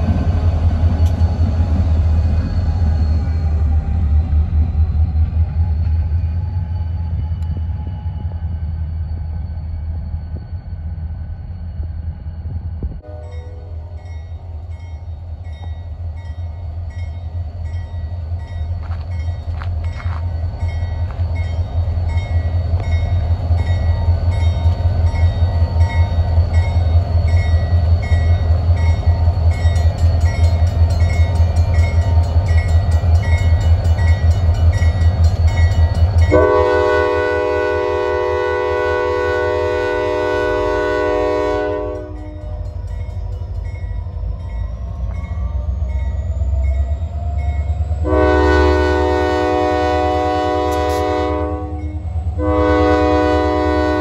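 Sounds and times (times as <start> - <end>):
diesel locomotive engine rumble: 0.0 - 54.0
multi-note air horn blast: 36.3 - 42.2, 48.0 - 51.8, 52.4 - 54.0.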